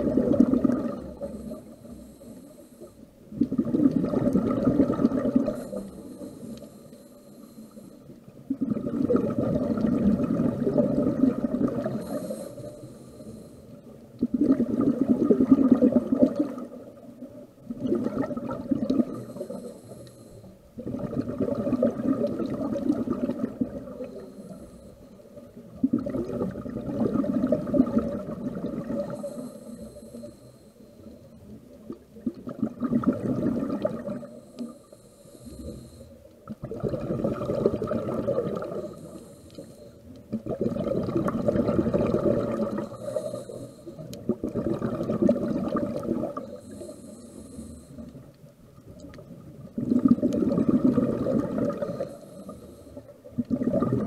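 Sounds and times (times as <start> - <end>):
exhaled bubbles rushing underwater: 0.0 - 2.1, 2.8 - 6.6, 8.2 - 19.7, 20.4 - 30.3, 31.0 - 34.7, 35.3 - 54.0
regulator inhalation hiss: 1.2 - 3.2, 5.4 - 8.1, 11.8 - 14.0, 19.0 - 20.6, 23.9 - 25.3, 29.1 - 31.5, 34.2 - 36.3, 38.6 - 40.1, 42.7 - 44.1, 46.4 - 48.2, 51.8 - 53.1.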